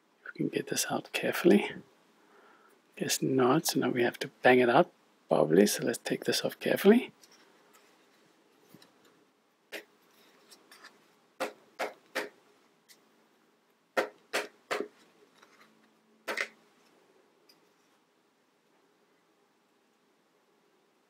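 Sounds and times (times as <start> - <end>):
plastic parts clacking: 14.9 - 16.6.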